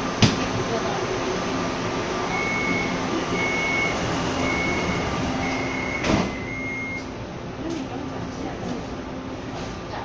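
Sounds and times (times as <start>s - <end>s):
train car hum: 0.0s - 10.0s
sliding doors shutting: 2.3s - 7.1s
train door warning beeps: 2.3s - 7.1s.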